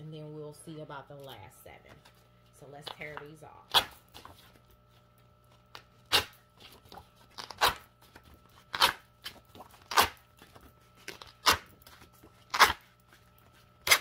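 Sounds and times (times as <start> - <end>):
paper tickets tearing: 13.8 - 14.0.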